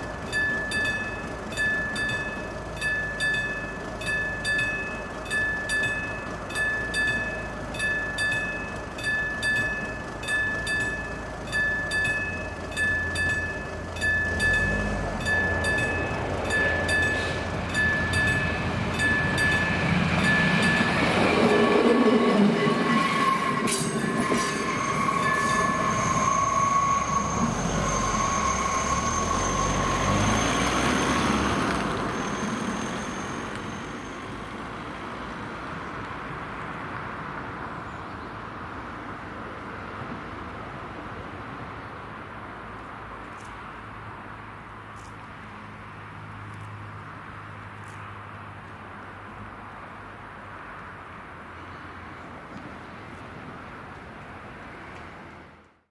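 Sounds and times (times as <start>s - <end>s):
level crossing warning bell: 0.0s - 34.3s
railcar wheels and engine rumble: 0.0s - 55.8s.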